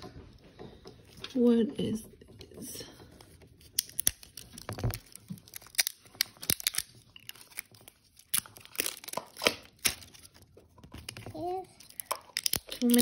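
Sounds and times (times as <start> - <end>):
plastic wrapping crackling and ripping: 3.4 - 13.0.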